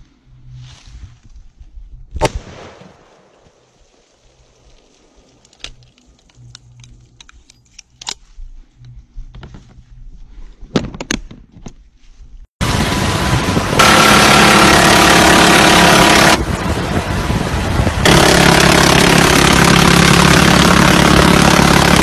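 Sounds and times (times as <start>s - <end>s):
metallic clicks from gun handling: 5.4s - 8.3s
loud continuous noise: 12.6s - 22.0s.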